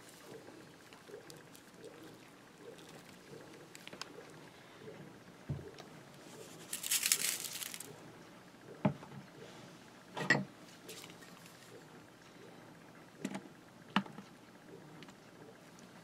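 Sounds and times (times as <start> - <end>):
shaker sprinkling rattle: 6.4 - 8.0.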